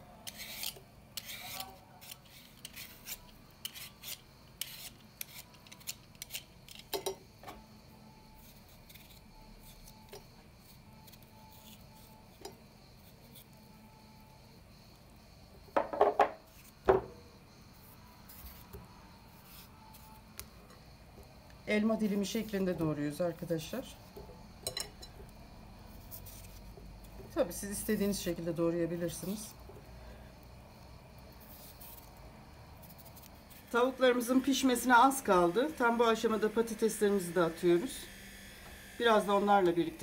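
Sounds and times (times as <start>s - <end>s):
paring knife scraping potato: 0.1s - 7.0s, 8.1s - 14.1s, 16.4s - 16.9s, 17.8s - 20.8s, 25.9s - 28.4s, 31.3s - 32.2s, 32.8s - 39.9s
vegetable peeler scraping potato: 0.2s - 6.9s, 8.2s - 13.7s, 25.9s - 29.6s, 31.4s - 32.2s, 32.8s - 40.0s
hard objects knocking on plate: 15.8s - 17.2s.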